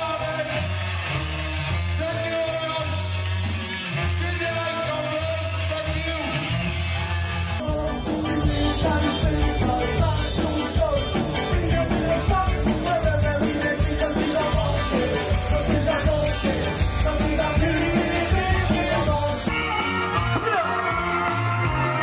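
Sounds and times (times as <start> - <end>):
live ska band playing: 0.0 - 22.0
person singing: 7.6 - 22.0
saxophone: 19.5 - 22.0.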